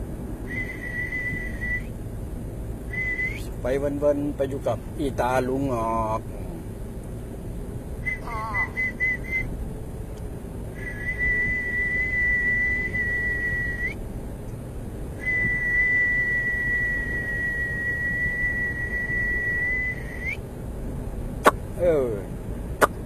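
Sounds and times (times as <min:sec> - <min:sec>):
high steady whistle: 0:00.5 - 0:01.9, 0:02.9 - 0:03.5, 0:08.0 - 0:09.5, 0:10.8 - 0:14.0, 0:15.2 - 0:20.4.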